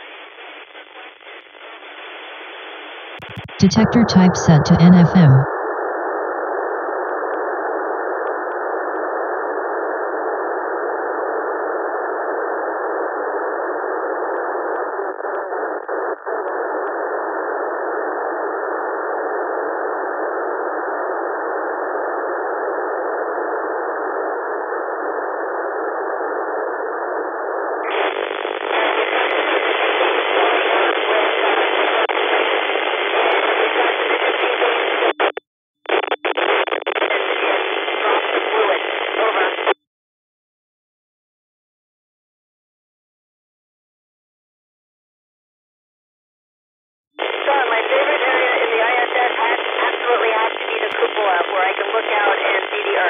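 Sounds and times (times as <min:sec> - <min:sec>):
radio static hiss: 0:03.2 - 0:05.5, 0:27.9 - 0:39.8, 0:47.2 - 0:53.0.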